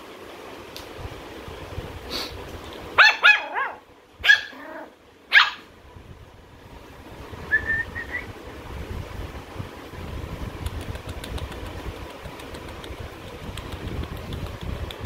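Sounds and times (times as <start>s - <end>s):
puppy yapping: 3.0s - 5.7s.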